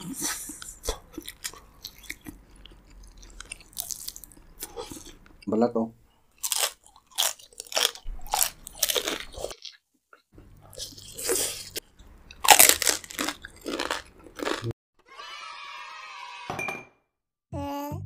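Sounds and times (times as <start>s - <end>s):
chewing: 0.1s - 5.5s, 6.4s - 14.7s
crunching bites into crisp meat: 6.4s - 9.8s, 12.3s - 14.7s.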